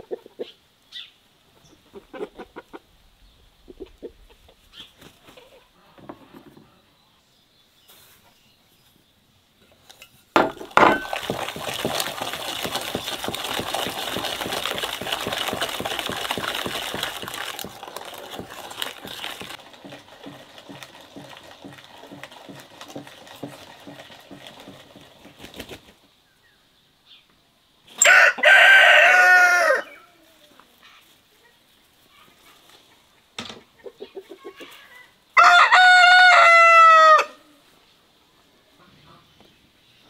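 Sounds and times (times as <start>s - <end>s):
rooster crowing: 28.0s - 30.1s, 35.4s - 37.4s.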